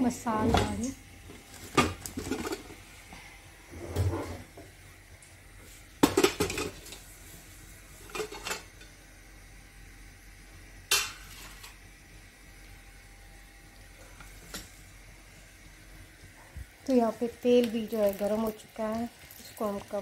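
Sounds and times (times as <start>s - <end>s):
metal pots and pans clanking: 1.7s - 2.7s, 6.0s - 7.0s, 8.1s - 8.7s, 10.9s - 11.8s.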